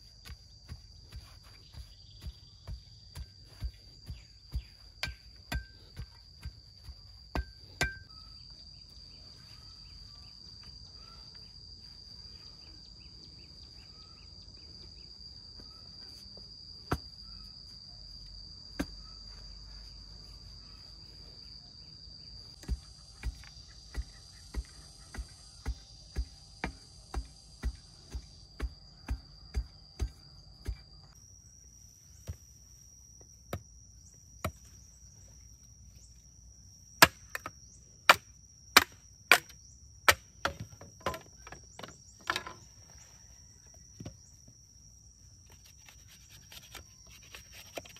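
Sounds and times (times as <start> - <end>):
insects droning: 0.0 - 47.9
digging bar thudding into earth: 0.2 - 8.2.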